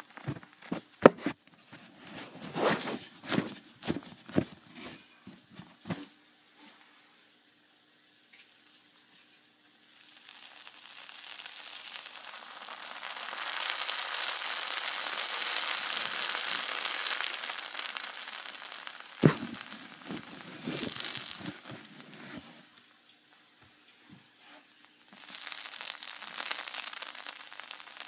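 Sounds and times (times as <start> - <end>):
hot knife sizzling through muffin: 9.8 - 22.6, 25.1 - 28.0.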